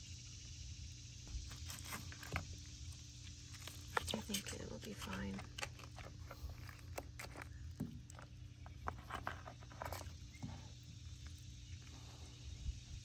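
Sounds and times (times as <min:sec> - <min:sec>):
wet handling sounds: 0:03.5 - 0:11.4.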